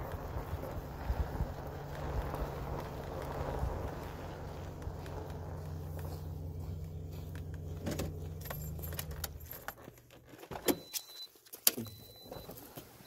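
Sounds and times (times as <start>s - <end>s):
vehicle engine idling: 0.0s - 10.0s
keys jingling: 7.5s - 11.2s.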